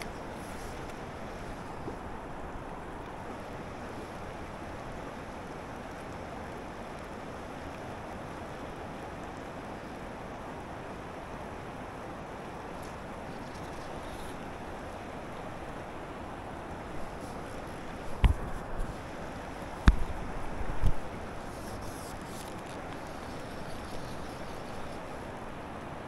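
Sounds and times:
river water rushing: 0.0s - 26.0s
wind on microphone: 12.6s - 26.0s.

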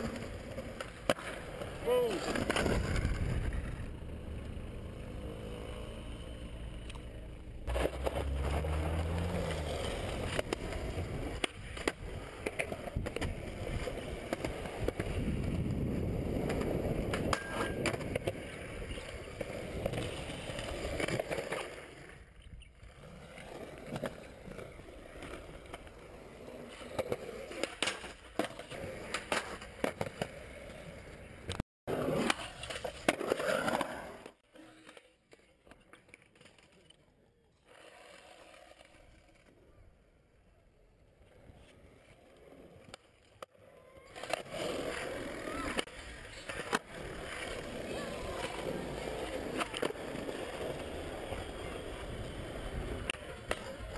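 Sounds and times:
skateboard wheels rolling on concrete: 0.0s - 53.9s
skateboard clacks: 6.8s - 22.0s, 42.2s - 53.9s.

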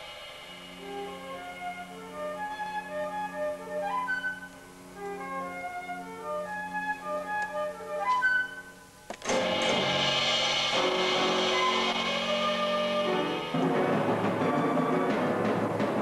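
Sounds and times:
dense sustained ensemble chord: 0.0s - 2.2s, 9.3s - 14.8s
flute short notes: 0.8s - 8.8s, 11.3s - 15.2s.

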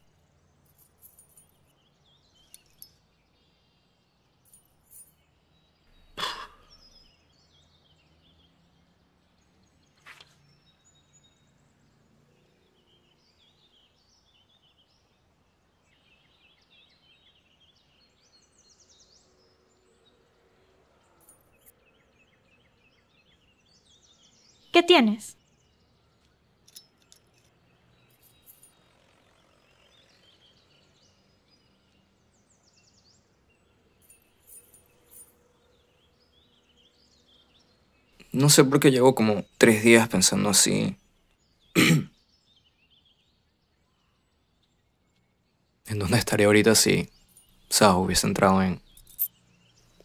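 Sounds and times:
faint bird chirps: 0.8s - 28.7s.

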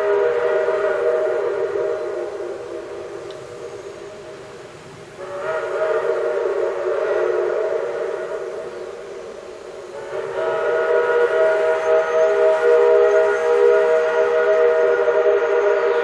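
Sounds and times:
steam whistle chord blasts: 0.0s - 4.6s, 5.2s - 16.0s.

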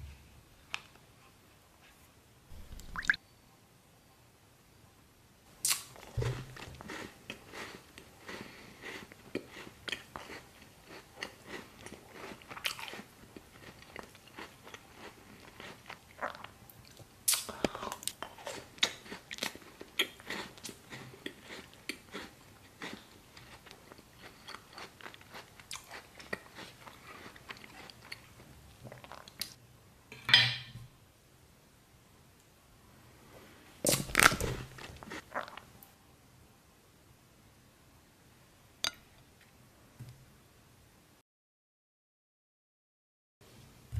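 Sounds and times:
chewing and crunching: 5.7s - 29.6s, 33.9s - 35.7s.

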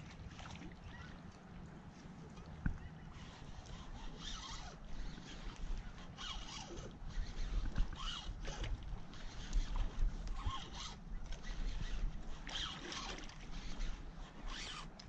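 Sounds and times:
fishing reel cranking raspily: 3.2s - 14.9s.

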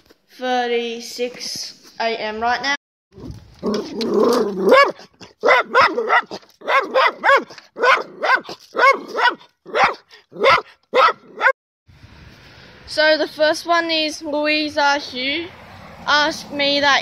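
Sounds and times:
dog barking: 4.6s - 11.6s.

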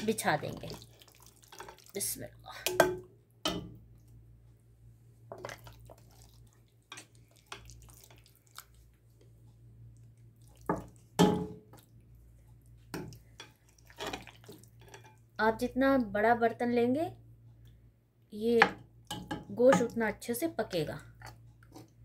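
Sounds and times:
faint steady low hum: 0.0s - 22.0s
soft wet plops: 5.3s - 15.1s.

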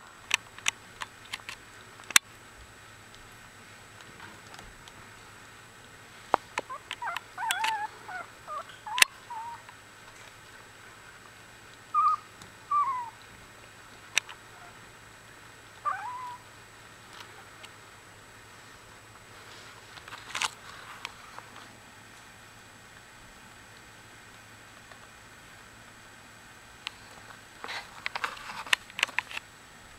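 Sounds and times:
puppies squeaking and whining: 6.7s - 9.6s, 12.0s - 13.2s, 15.8s - 16.4s.

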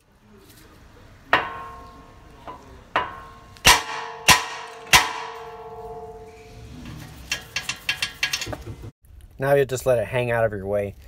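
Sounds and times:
hammer striking steel: 1.3s - 6.5s.

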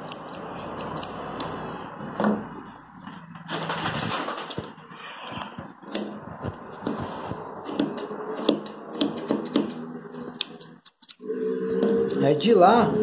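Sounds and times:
grooming scissors snipping: 0.0s - 1.2s.

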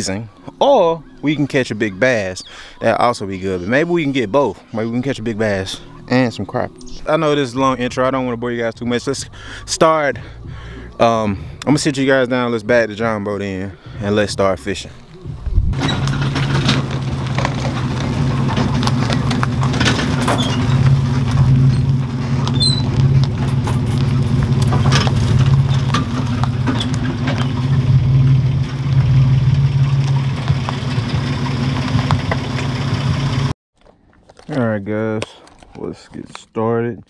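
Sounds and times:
car engine running: 7.7s - 11.9s, 13.9s - 33.5s
tyres crunching over leaves: 14.7s - 32.7s.

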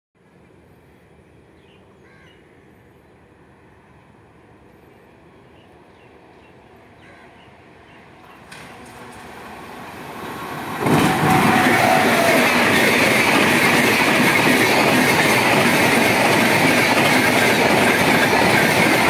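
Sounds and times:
electric train rumbling: 2.6s - 19.0s
birds calling: 5.6s - 8.6s.

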